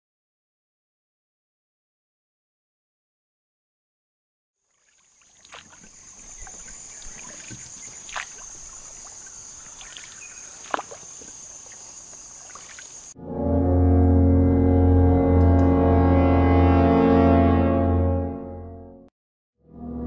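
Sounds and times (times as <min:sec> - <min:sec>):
faint water sounds: 0:04.6 - 0:13.2
music with deep low drone: 0:13.2 - 0:19.1.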